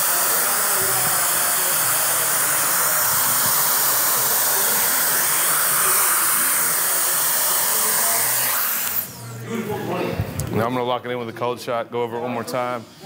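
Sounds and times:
blow dryer running: 0:00.0 - 0:09.4.

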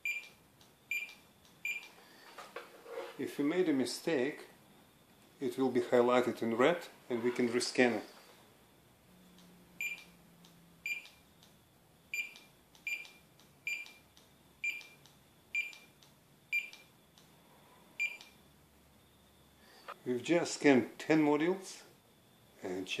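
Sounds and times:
barcode scanner beeping: 0:00.0 - 0:01.9, 0:09.8 - 0:10.2, 0:10.8 - 0:11.2, 0:12.1 - 0:16.9, 0:18.0 - 0:18.4.

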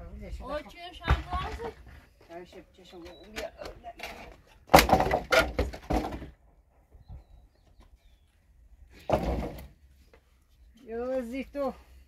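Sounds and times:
loud knocks and thuds: 0:04.7 - 0:06.4, 0:09.1 - 0:09.7.

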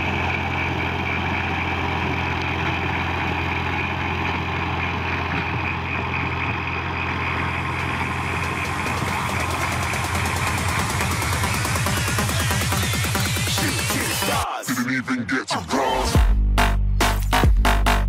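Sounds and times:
tractor diesel engine running: 0:00.0 - 0:14.4.

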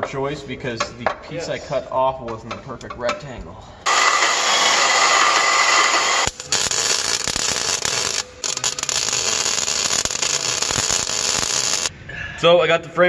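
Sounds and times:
arc welding crackle: 0:03.9 - 0:11.9
power saw cutting steel: 0:03.9 - 0:11.9.

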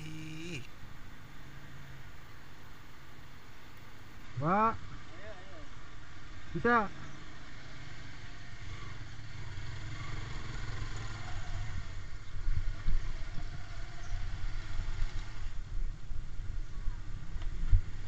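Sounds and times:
motorcycle engine rumbling: 0:00.0 - 0:04.2.

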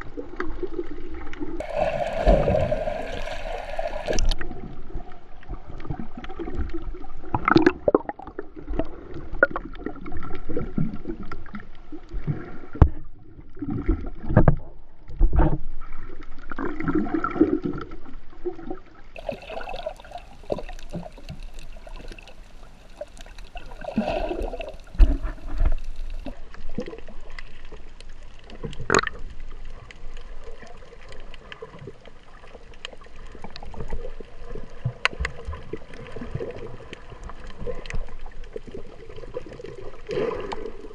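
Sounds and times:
underwater water sloshing: 0:00.0 - 0:40.9
underwater thumps: 0:24.4 - 0:26.3.

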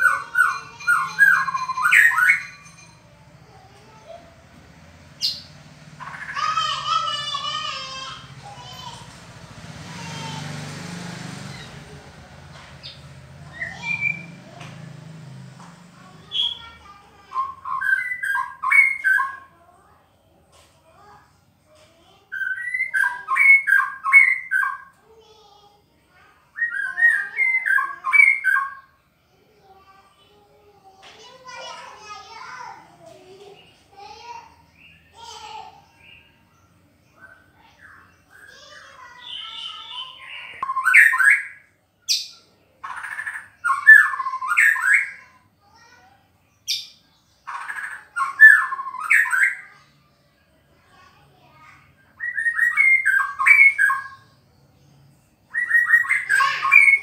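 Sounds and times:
songbird whistling and rasping: 0:00.0 - 0:03.0, 0:12.8 - 0:14.4, 0:16.3 - 0:19.5, 0:22.3 - 0:25.0, 0:26.5 - 0:29.0, 0:37.1 - 0:45.4, 0:46.6 - 0:49.8, 0:52.1 - 0:54.4, 0:55.4 - 0:57.0
bird singing whistled notes: 0:26.5 - 0:28.9, 0:37.2 - 0:45.2, 0:52.2 - 0:54.3, 0:55.5 - 0:57.0.

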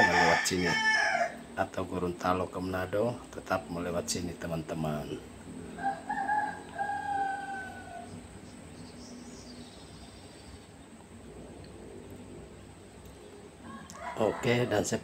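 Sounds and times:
rooster crowing: 0:00.0 - 0:01.5, 0:05.7 - 0:08.3, 0:13.6 - 0:15.0
low road noise hum: 0:00.0 - 0:15.0.

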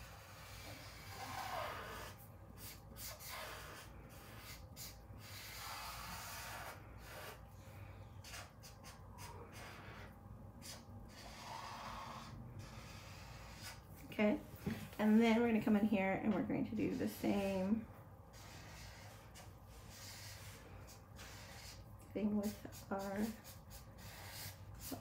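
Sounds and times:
marker rubbing on paper: 0:00.0 - 0:07.4, 0:08.2 - 0:13.8, 0:16.7 - 0:17.7, 0:18.3 - 0:25.0.

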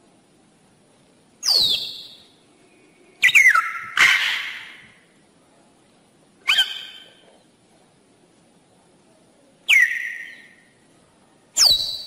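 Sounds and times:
macaw squawking: 0:03.2 - 0:05.0, 0:06.4 - 0:07.2.

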